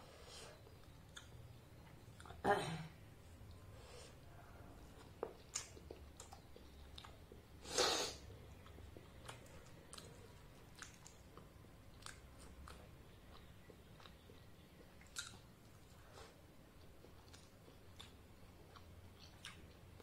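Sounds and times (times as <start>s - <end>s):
close-up chewing fried bread: 4.8s - 7.6s, 8.3s - 20.0s.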